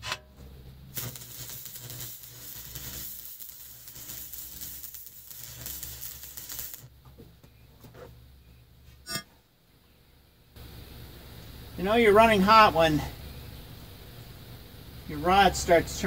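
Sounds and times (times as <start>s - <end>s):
steady low hum: 0.0s - 16.0s
welding arc crackling and sizzling: 0.7s - 7.0s, 10.6s - 13.2s, 13.8s - 16.0s.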